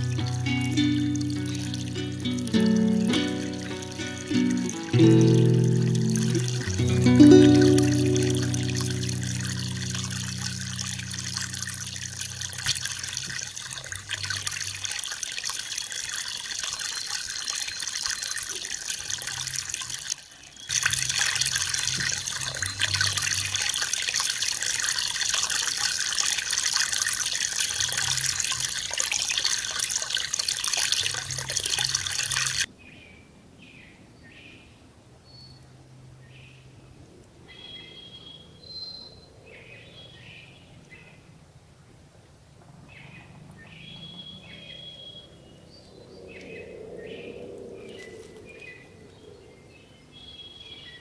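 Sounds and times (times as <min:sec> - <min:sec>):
water flowing and trickling: 0:00.0 - 0:32.7, 0:47.8 - 0:49.2.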